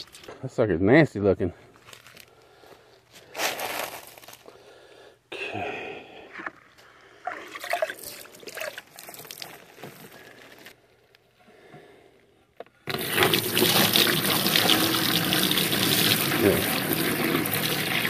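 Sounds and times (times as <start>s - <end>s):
water sloshing and trickling: 7.2s - 9.8s
running water rushing: 12.9s - 18.0s.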